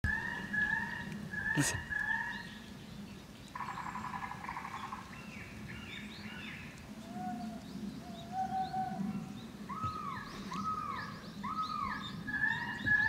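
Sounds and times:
recorded bird calls from loudspeaker: 0:00.1 - 0:02.5.

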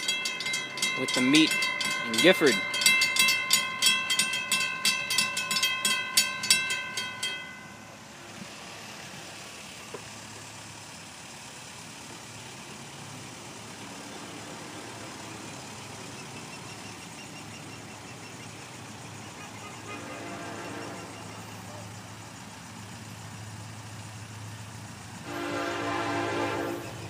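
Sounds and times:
railroad crossing bell ringing: 0:00.0 - 0:08.1, 0:15.1 - 0:27.0.

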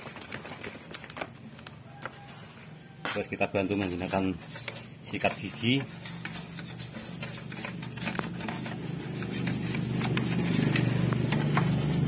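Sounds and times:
toothbrush scrubbing plastic: 0:03.7 - 0:12.0
vehicle engine hum: 0:04.8 - 0:12.0.

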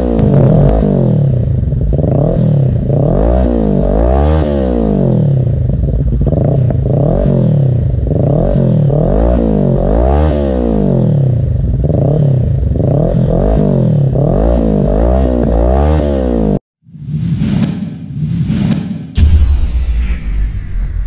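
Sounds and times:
motorcycle engine revving: 0:00.0 - 0:16.6.

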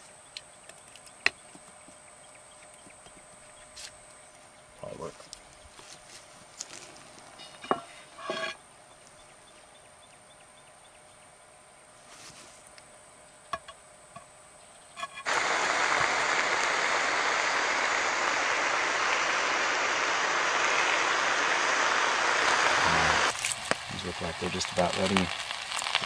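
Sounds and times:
food sizzling in butter: 0:15.2 - 0:26.0.

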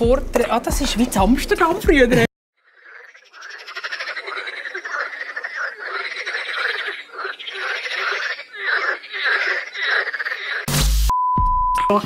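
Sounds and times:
chorus of frogs croaking: 0:02.6 - 0:10.7.

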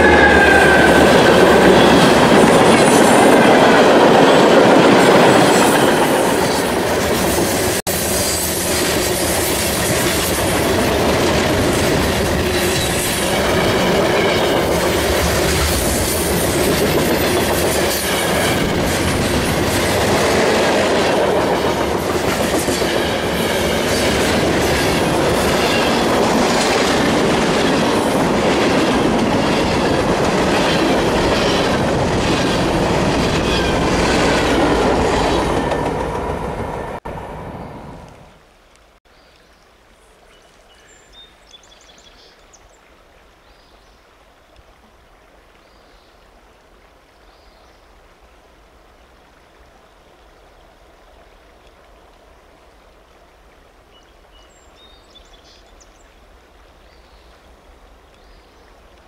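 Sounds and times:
train wheels rumbling on rail: 0:00.0 - 0:38.3
clickety-clack over rail joints: 0:08.6 - 0:37.0.

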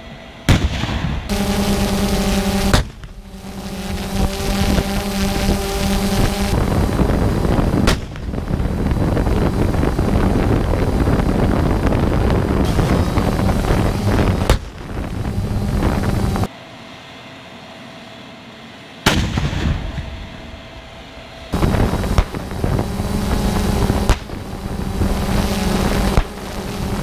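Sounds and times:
tank gun firing with echo: 0:00.5 - 0:01.3, 0:19.1 - 0:20.2
vehicle and wind rumble: 0:00.5 - 0:16.5, 0:21.5 - 0:27.0.

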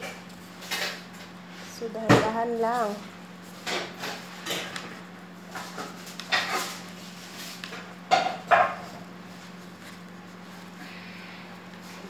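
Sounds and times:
plastic gloves and dough rustling: 0:00.0 - 0:12.0
steady low hum: 0:00.0 - 0:12.0.

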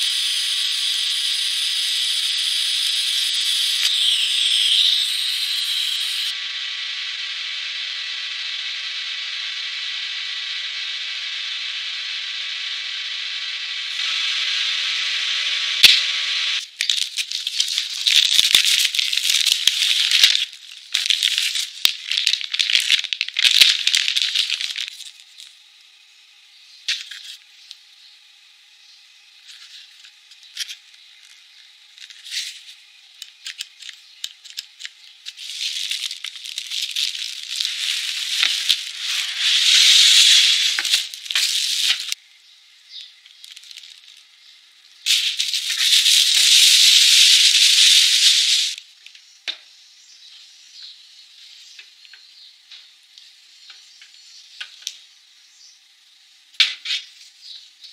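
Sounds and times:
packaging rustling and crinkling: 0:16.6 - 0:25.6, 0:30.6 - 0:42.2, 0:43.2 - 0:44.3, 0:45.1 - 0:48.8.

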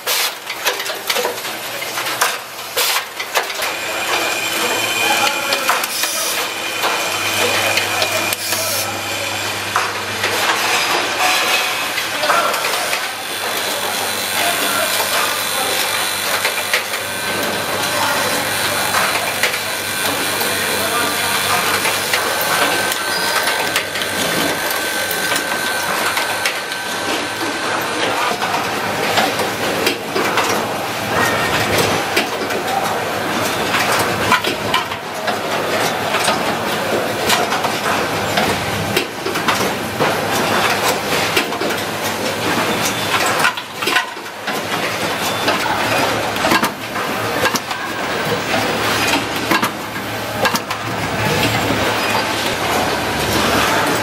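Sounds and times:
factory hum: 0:00.0 - 0:54.0
machines clattering and clicking: 0:00.0 - 0:54.0.

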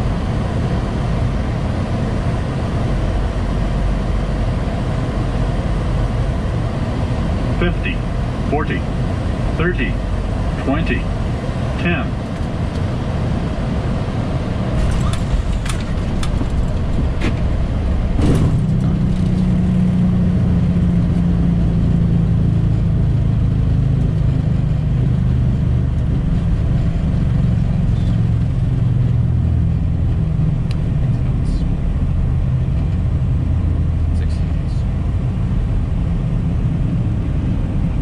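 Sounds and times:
airplane landing rumble: 0:00.0 - 0:38.0
jet engines droning: 0:00.0 - 0:38.0
sudden thump: 0:18.1 - 0:18.9.

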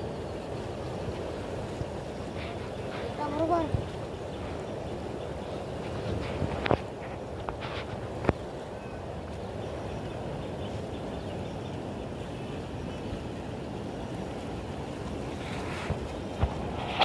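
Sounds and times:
flowing river water: 0:00.0 - 0:17.0
wind on microphone: 0:00.0 - 0:17.0.

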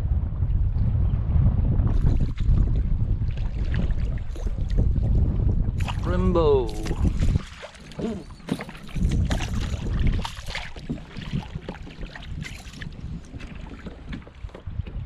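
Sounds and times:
wind buffeting microphone: 0:00.0 - 0:15.0
fish splashing in water: 0:07.0 - 0:12.9.

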